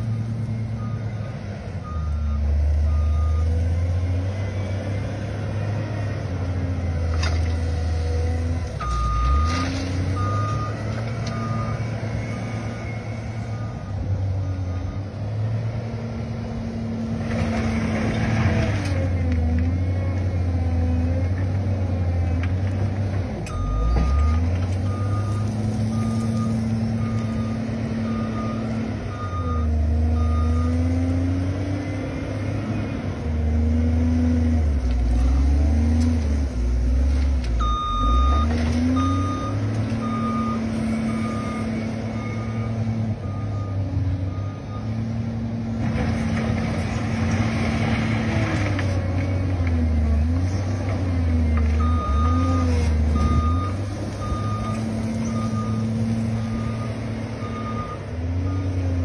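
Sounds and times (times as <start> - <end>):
wheel loader diesel engine revving: 0.0 - 59.0
reversing alarm beeps: 1.8 - 3.6, 8.8 - 9.6, 10.2 - 15.2, 23.5 - 30.8, 37.6 - 45.0, 51.8 - 58.8.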